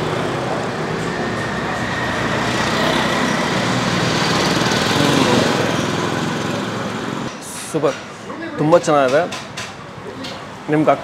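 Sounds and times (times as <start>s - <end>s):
small engine running: 0.0s - 7.3s
street traffic: 0.0s - 11.0s.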